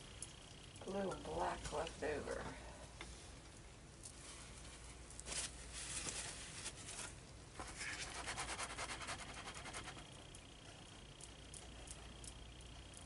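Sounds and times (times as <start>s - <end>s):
gloved hands scraping and rustling: 4.1s - 10.0s.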